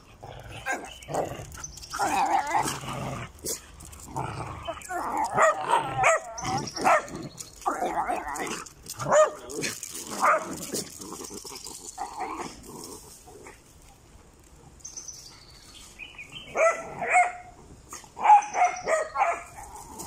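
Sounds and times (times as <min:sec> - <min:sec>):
dogs barking: 0:04.8 - 0:07.2, 0:09.0 - 0:09.4, 0:10.1 - 0:10.6, 0:16.5 - 0:17.6, 0:18.2 - 0:19.8.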